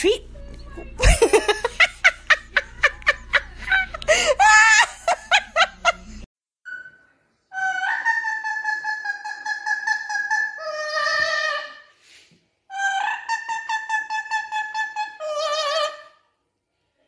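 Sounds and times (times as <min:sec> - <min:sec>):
person laughing: 0:01.0 - 0:06.2.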